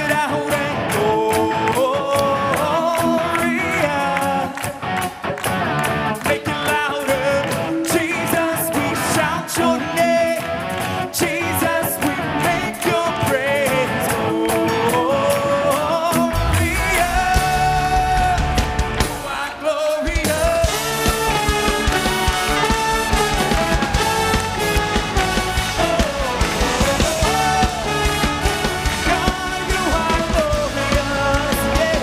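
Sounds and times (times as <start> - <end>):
man singing lead: 0.0 - 5.2, 6.0 - 32.0
backing singers: 0.0 - 32.0
electric guitar: 0.0 - 32.0
drum kit: 11.2 - 32.0.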